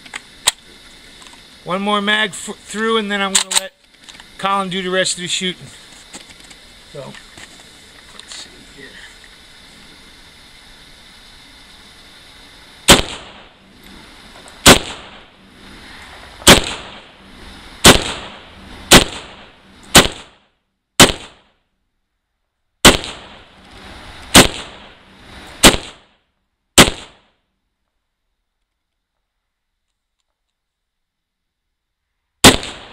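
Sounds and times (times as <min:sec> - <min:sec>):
rifle shots with echo: 0:12.9 - 0:13.5, 0:14.6 - 0:15.3, 0:16.4 - 0:17.1, 0:17.8 - 0:20.4, 0:21.0 - 0:21.5, 0:22.8 - 0:23.5, 0:24.3 - 0:25.0, 0:25.6 - 0:26.1, 0:26.8 - 0:27.3, 0:32.4 - 0:32.9.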